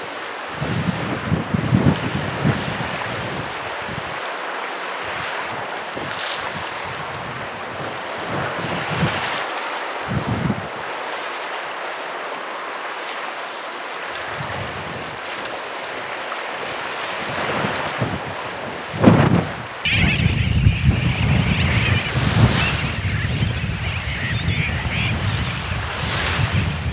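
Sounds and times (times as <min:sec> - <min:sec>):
wind gusting on microphone: 0:00.0 - 0:11.2, 0:14.2 - 0:26.9
waves washing onto sand: 0:00.0 - 0:26.9.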